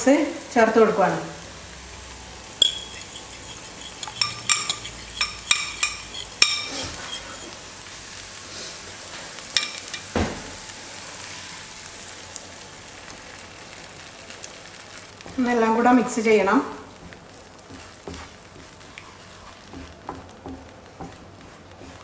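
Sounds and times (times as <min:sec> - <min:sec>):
food sizzling in a pan: 0:00.0 - 0:22.0
kitchen utensils clinking: 0:02.6 - 0:07.6, 0:09.5 - 0:10.2.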